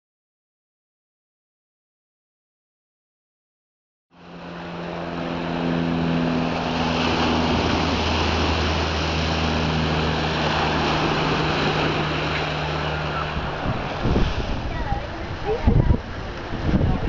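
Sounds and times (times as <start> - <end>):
low steady hum: 4.2 - 17.0
waves and wind rushing: 4.2 - 17.0.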